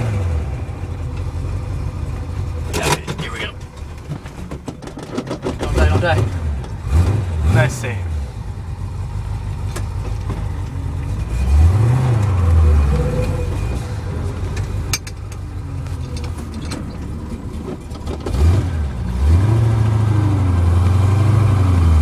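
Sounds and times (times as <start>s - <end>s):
car engine revving inside cabin: 5.6s - 14.6s, 18.2s - 22.0s.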